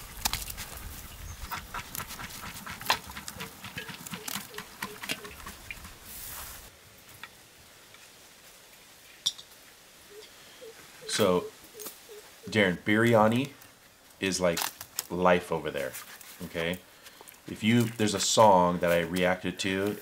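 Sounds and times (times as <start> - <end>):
ladle clicking and scraping in clay pot: 1.5 - 6.0.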